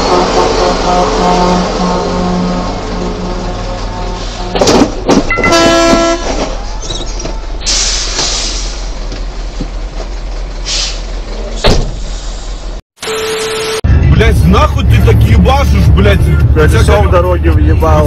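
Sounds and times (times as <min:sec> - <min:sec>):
truck horn: 0:00.0 - 0:06.5, 0:13.0 - 0:13.9
truck engine and tyres rumbling: 0:00.0 - 0:12.8, 0:13.8 - 0:18.0
air brake hissing: 0:07.6 - 0:08.9, 0:10.6 - 0:11.1, 0:11.9 - 0:12.6.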